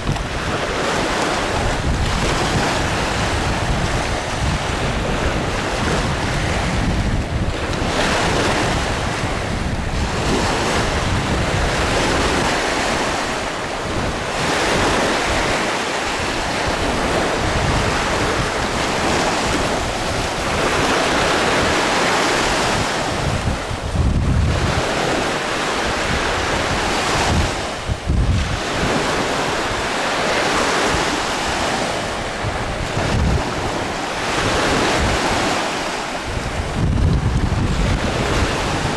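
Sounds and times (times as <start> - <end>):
small waves washing: 0.0 - 38.9
wind buffeting microphone: 0.0 - 38.9.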